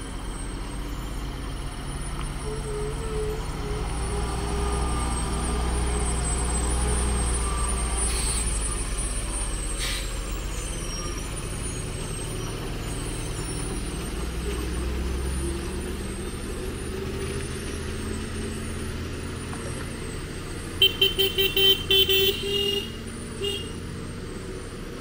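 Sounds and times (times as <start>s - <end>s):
lorry diesel engine running: 0.0s - 25.0s
air brake hisses: 8.0s - 8.6s, 9.8s - 10.3s.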